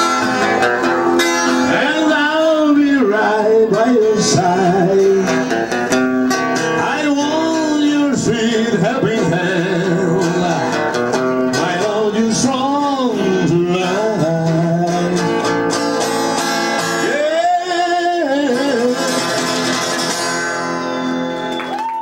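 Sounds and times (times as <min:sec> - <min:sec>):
strummed acoustic guitar: 0:00.0 - 0:21.5
man singing: 0:01.6 - 0:05.6, 0:06.6 - 0:15.6, 0:16.8 - 0:20.0.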